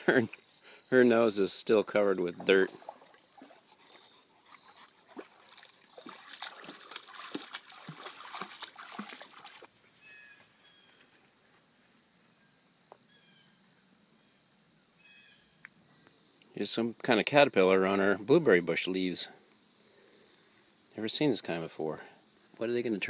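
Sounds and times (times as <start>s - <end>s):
insects chirring: 0.0s - 23.0s
water splashing: 1.8s - 9.7s.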